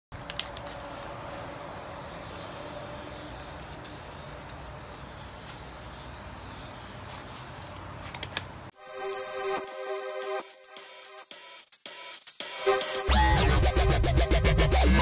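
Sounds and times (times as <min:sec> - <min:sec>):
aerosol spray can hissing: 0:01.3 - 0:07.8.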